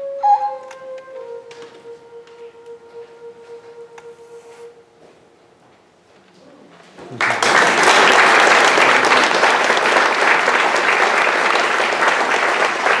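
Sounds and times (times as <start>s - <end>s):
audience applauding: 7.0s - 13.0s.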